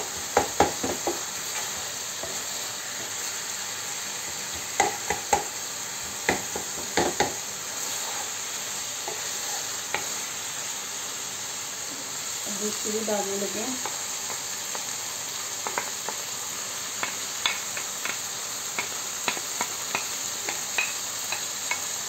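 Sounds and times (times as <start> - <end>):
chicken sizzling in a pan: 0.0 - 22.0
spatula knocking against a pan: 0.3 - 1.2, 4.3 - 5.5, 6.2 - 7.4.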